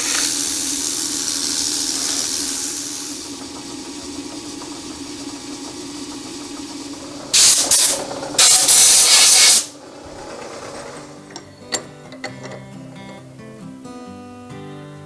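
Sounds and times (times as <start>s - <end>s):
compressed air blow gun blasting: 0.0s - 3.8s, 7.3s - 9.8s
lathe spindle hum: 0.0s - 13.2s.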